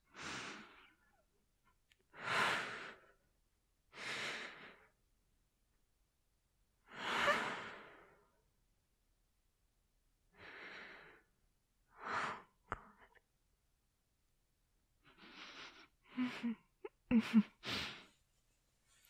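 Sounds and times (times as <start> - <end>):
woman breathing deeply and sighing: 0.0 - 1.2, 2.1 - 3.2, 3.9 - 5.0, 6.8 - 8.4, 10.3 - 13.2, 15.1 - 18.2.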